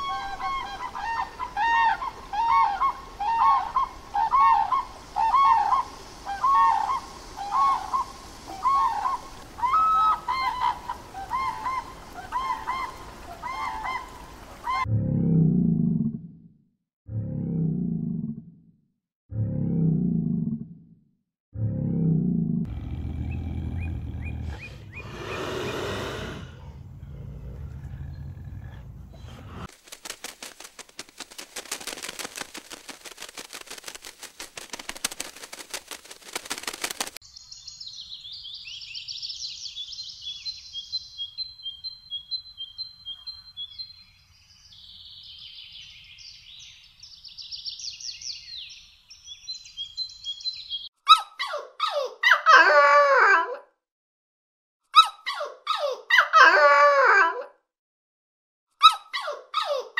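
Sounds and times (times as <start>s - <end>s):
songbird singing: 22.7s - 26.1s, 36.6s - 50.9s
fast dry rattle: 29.7s - 37.2s
dogs whimpering and yipping: 58.8s - 59.9s.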